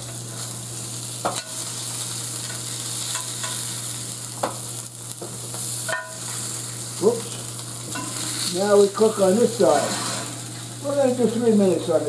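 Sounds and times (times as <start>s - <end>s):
steak sizzling in a pan: 0.0s - 12.0s
tongs clinking against pan: 1.2s - 1.6s, 2.4s - 3.6s, 5.9s - 6.3s, 7.9s - 8.3s.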